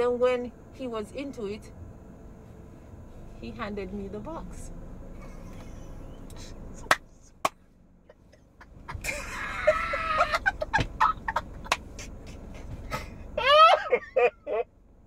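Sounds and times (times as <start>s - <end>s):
man laughing loudly: 8.1s - 14.7s.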